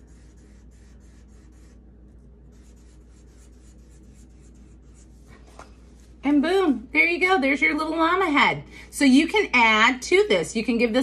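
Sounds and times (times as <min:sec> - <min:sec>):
pen scratching on paper: 0:00.0 - 0:05.4
low room hum: 0:00.0 - 0:11.0.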